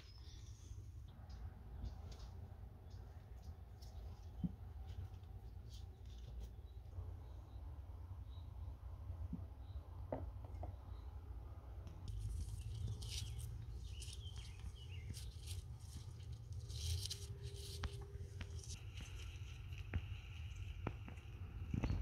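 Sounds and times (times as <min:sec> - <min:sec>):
low steady rumble: 0:00.0 - 0:22.0
leaves rustling and crinkling: 0:12.0 - 0:22.0.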